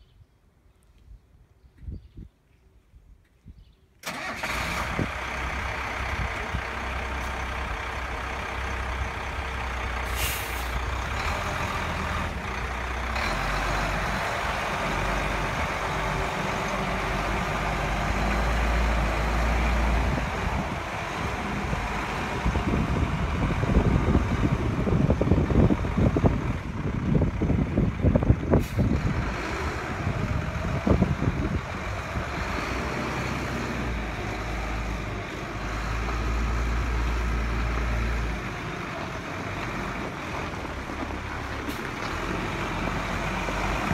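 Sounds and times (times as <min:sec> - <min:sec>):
wind buffeting microphone: 0:01.0 - 0:03.8, 0:04.8 - 0:10.1, 0:10.7 - 0:43.9
truck engine rumbling: 0:04.0 - 0:43.9
tyres on gravel: 0:37.0 - 0:43.9.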